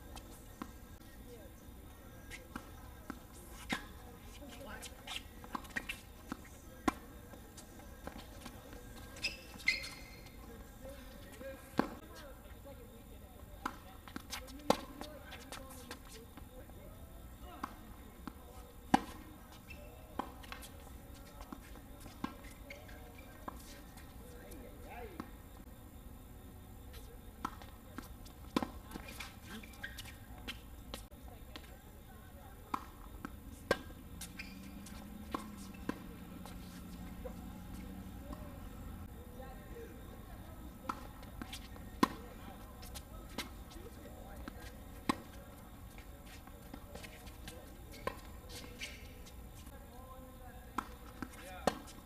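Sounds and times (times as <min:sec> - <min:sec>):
tennis balls struck by rackets: 0:02.1 - 0:12.2, 0:13.6 - 0:16.5, 0:17.4 - 0:23.6, 0:27.0 - 0:31.8, 0:32.6 - 0:39.1, 0:40.0 - 0:49.3, 0:50.7 - 0:52.0.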